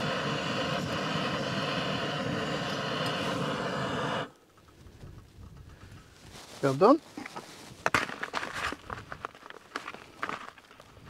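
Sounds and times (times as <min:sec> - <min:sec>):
gas stove hissing: 0:00.0 - 0:06.2.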